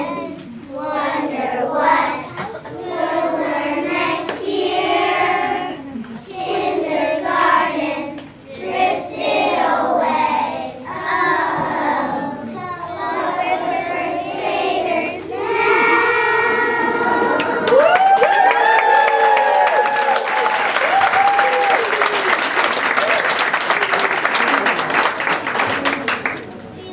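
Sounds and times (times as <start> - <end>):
young children singing: 0.0 - 18.0.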